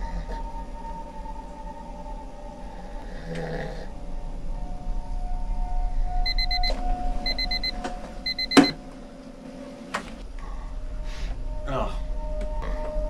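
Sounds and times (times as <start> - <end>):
steady hum: 3.9 - 11.6
digital watch alarm beeping: 6.2 - 8.8.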